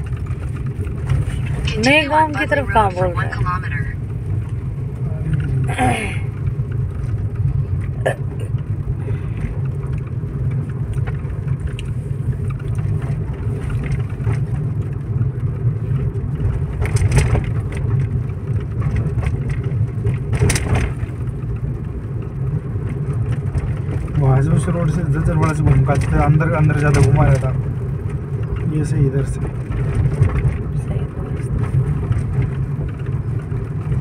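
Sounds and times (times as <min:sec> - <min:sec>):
car engine and road rumble: 0:00.0 - 0:34.0
knocks and rattles: 0:16.4 - 0:21.2.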